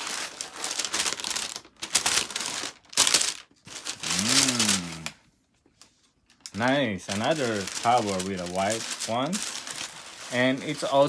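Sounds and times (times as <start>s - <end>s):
paper crinkling and rustling: 0.0s - 4.9s, 5.7s - 11.0s
man humming: 4.0s - 5.3s.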